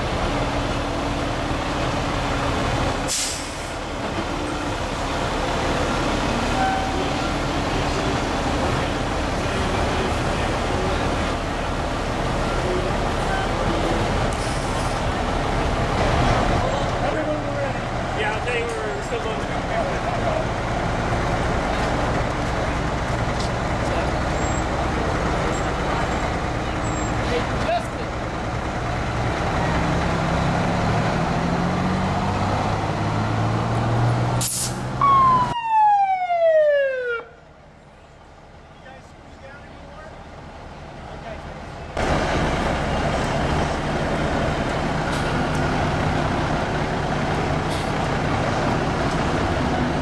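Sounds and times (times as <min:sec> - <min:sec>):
fire engines rumbling past: 0:00.0 - 0:50.0
air hiss: 0:34.4 - 0:34.9
siren winding down: 0:35.0 - 0:37.3.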